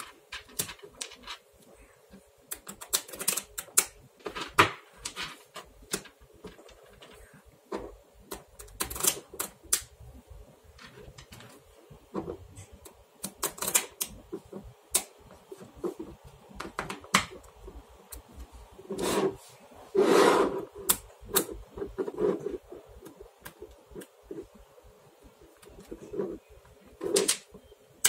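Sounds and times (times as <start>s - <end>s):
magnetic balls clattering: 0.0s - 1.6s, 2.6s - 9.9s, 10.6s - 19.4s
magnetic balls clicking together: 0.0s - 1.7s, 2.4s - 4.1s, 12.4s - 18.5s.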